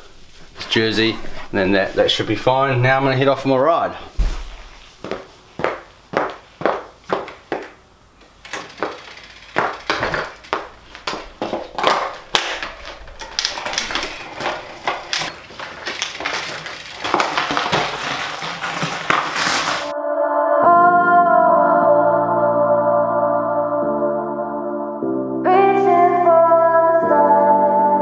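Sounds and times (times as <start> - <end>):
shoe cleats clacking on concrete: 5.0 - 13.0
bike clattering: 6.8 - 19.9
bike clicking and rolling: 8.2 - 19.9.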